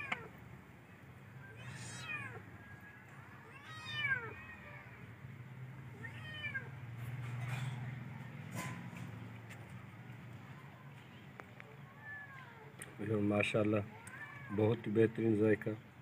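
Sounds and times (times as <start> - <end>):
cat meowing: 1.4 - 5.0, 5.9 - 6.7, 11.7 - 12.7, 13.9 - 14.6.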